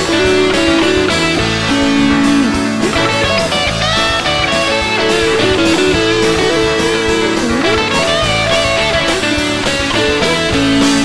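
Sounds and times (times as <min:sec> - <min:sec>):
drums and bass beat: 0:00.0 - 0:11.0
electric guitar sustained notes: 0:00.0 - 0:11.0.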